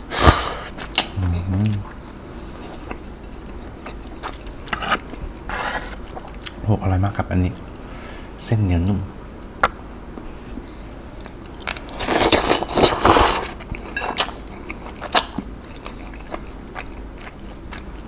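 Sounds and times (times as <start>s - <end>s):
person slurping noodles: 12.0s - 13.6s.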